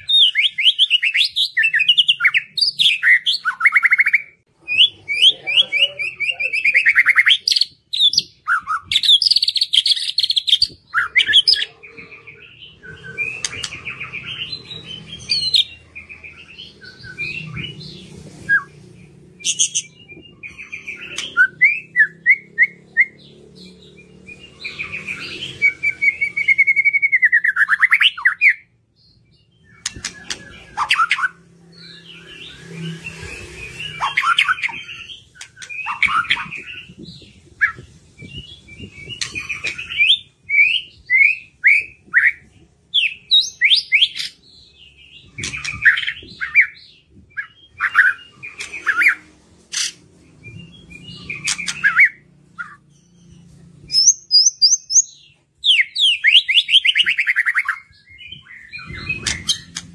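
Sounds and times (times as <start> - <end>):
bird singing trills and whistles: 0.0 - 59.9
sharp bird clicks: 51.4 - 52.7.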